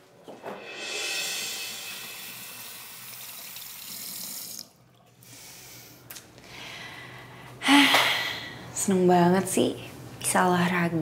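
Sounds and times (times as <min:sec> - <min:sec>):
steady hiss: 0:00.6 - 0:03.4.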